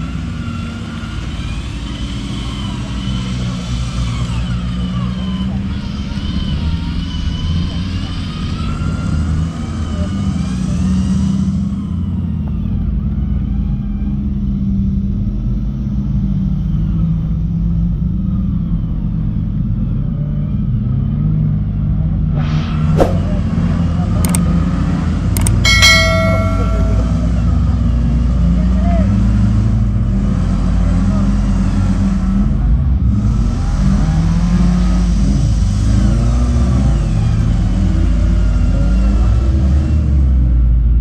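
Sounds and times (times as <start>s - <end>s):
off-road engine rumbling: 0.0s - 41.0s
sharp clicks: 25.4s - 25.6s
short bell-like chime: 25.7s - 27.8s.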